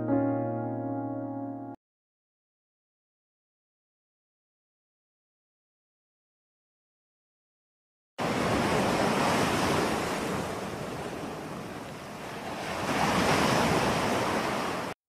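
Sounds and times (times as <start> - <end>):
ocean waves breaking: 8.2 - 15.0.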